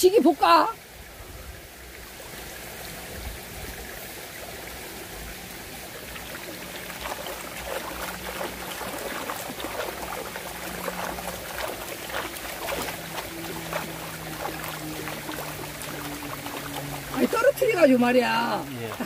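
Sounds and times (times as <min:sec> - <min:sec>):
stream trickling over rocks: 0:00.0 - 0:19.0
rag scrubbed in water: 0:06.5 - 0:19.0.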